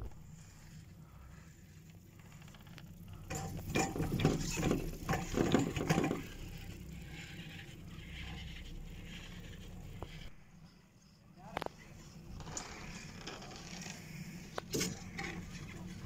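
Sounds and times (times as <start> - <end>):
low steady hum: 0.0 - 16.0
chairlift machinery rattling clicks: 1.9 - 7.4.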